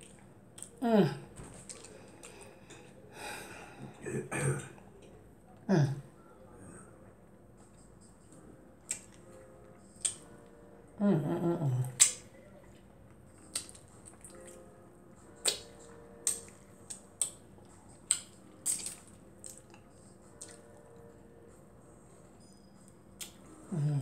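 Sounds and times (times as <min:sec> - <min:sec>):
wet eating smacks and chewing: 0:01.4 - 0:02.6, 0:13.4 - 0:14.6, 0:15.3 - 0:20.8
person humming mmm: 0:11.0 - 0:12.2, 0:23.6 - 0:24.0.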